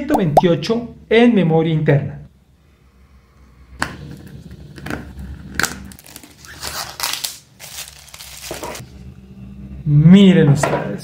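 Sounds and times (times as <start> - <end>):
plastic wrap crinkling: 5.6 - 8.8
plastic wrap snapping: 5.6 - 8.8.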